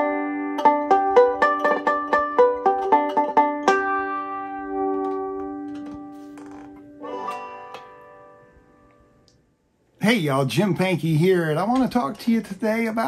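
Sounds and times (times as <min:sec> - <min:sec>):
banjo harmonics: 0:00.0 - 0:09.2
ringing banjo chord: 0:00.0 - 0:09.2.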